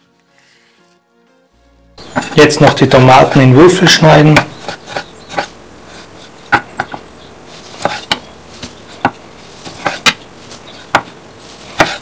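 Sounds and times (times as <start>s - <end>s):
knife cutting on wooden board: 4.3s - 12.0s.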